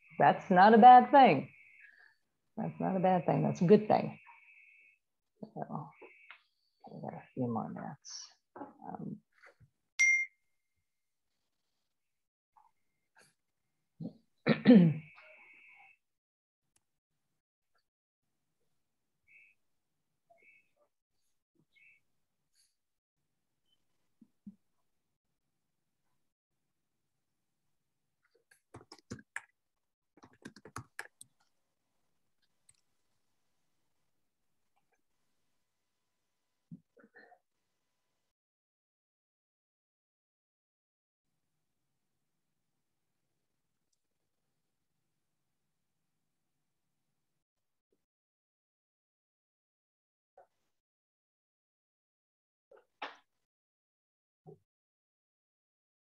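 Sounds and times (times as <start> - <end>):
person coughing: 14.5 - 15.0
keyboard typing: 28.5 - 29.5, 30.2 - 31.4.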